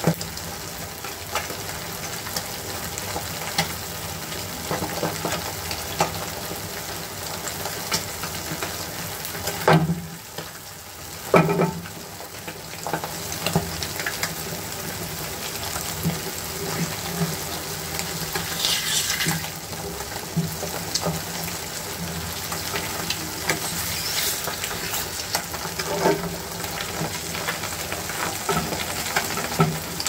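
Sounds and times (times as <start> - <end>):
eggs sizzling in oil: 0.0 - 30.0
oil popping and crackling: 7.4 - 30.0.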